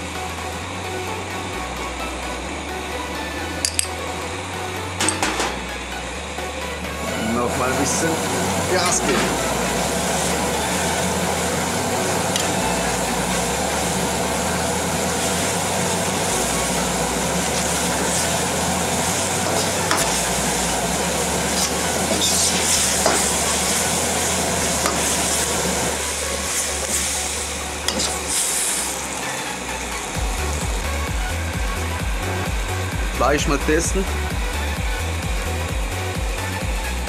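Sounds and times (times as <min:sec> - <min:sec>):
gas burner rumble: 0:00.0 - 0:37.0
steady sizzling in a wok: 0:07.6 - 0:33.2, 0:34.0 - 0:37.0.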